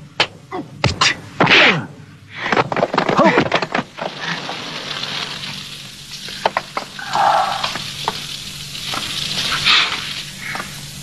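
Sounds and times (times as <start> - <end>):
fire crackling and hissing: 3.5 - 11.0.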